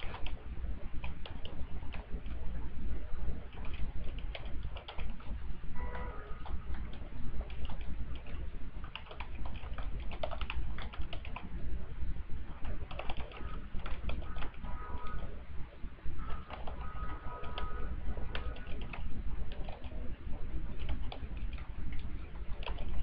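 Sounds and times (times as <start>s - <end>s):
computer keyboard typing: 0.0s - 0.4s, 1.0s - 2.4s, 3.5s - 5.3s, 6.0s - 11.5s, 12.6s - 15.3s, 16.2s - 20.1s, 20.8s - 23.0s.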